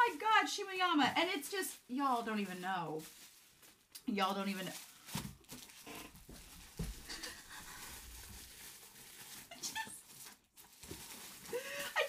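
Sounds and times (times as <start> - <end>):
woman whimpering and squeaking: 9.5 - 10.1.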